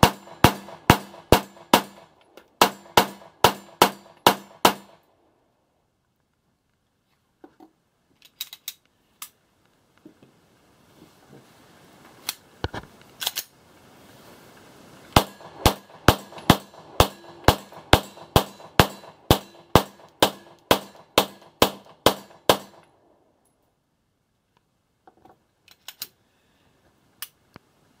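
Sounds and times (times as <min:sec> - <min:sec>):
pistol shots: 0:00.0 - 0:05.0, 0:15.2 - 0:22.8.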